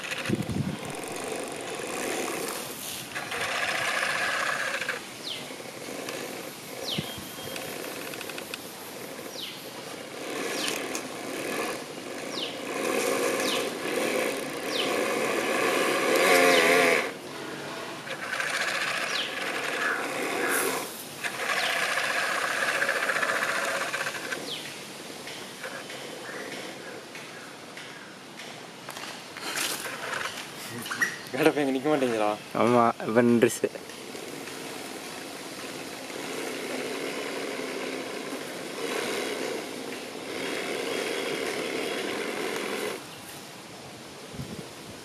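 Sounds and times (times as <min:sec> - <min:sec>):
hydraulic pump buzzing whir: 0:00.0 - 0:24.7, 0:33.9 - 0:43.0.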